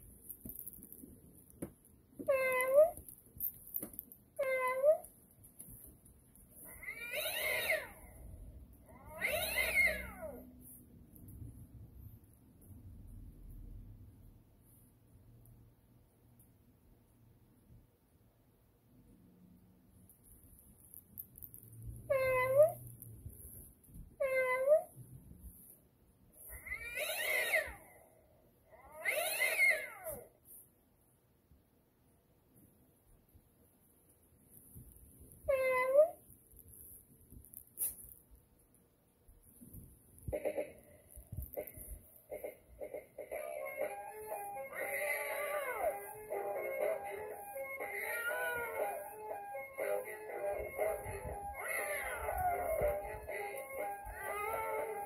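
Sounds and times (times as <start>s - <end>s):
toy cat meows: 2.2s - 3.0s, 4.4s - 5.1s, 6.6s - 8.2s, 8.9s - 10.5s, 22.0s - 22.8s, 24.2s - 24.9s, 26.4s - 28.0s, 28.7s - 30.3s, 35.5s - 36.2s, 43.4s - 55.0s
toy cat wavering yowls: 2.2s - 3.1s, 4.4s - 5.1s, 6.6s - 10.5s, 22.0s - 22.9s, 24.2s - 25.0s, 26.4s - 28.0s, 28.6s - 30.3s, 35.4s - 36.2s, 43.2s - 55.0s.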